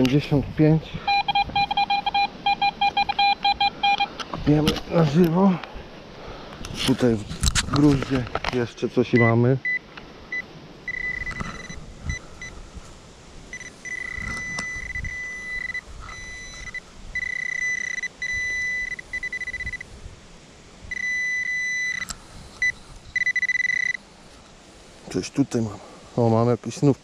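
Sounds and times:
metal detector beeping: 0:01.0 - 0:04.2, 0:09.1 - 0:12.6, 0:13.5 - 0:19.9, 0:20.9 - 0:24.0.

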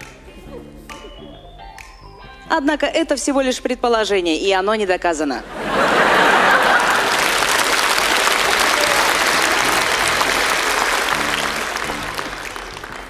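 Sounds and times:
low music: 0:00.0 - 0:04.7, 0:07.4 - 0:13.0
audience laughing: 0:05.4 - 0:12.3
audience applauding: 0:05.8 - 0:13.0.

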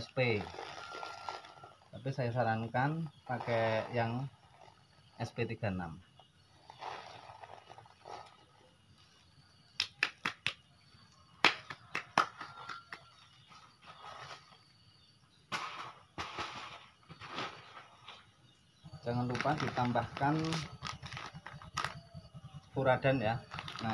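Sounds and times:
plastic packaging rustling: 0:23.5 - 0:23.9.

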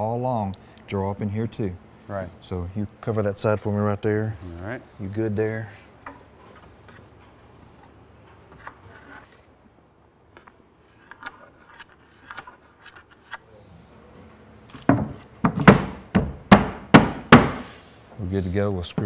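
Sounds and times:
sharp wooden knocks: 0:14.9 - 0:17.6.

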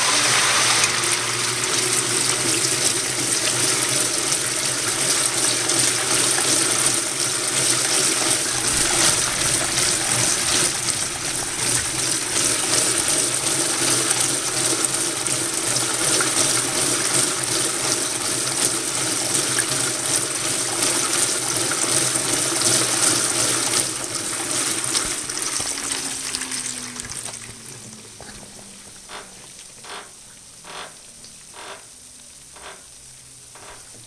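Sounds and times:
washer tub spinning: 0:00.0 - 0:34.0
water rushing: 0:00.0 - 0:34.0
motor humming: 0:08.0 - 0:15.6, 0:24.3 - 0:34.0.

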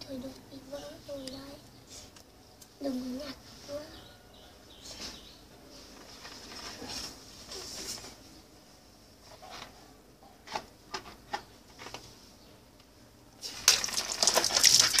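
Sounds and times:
water spraying against a wall: 0:13.4 - 0:15.0
water balloon bursting: 0:13.5 - 0:15.0.

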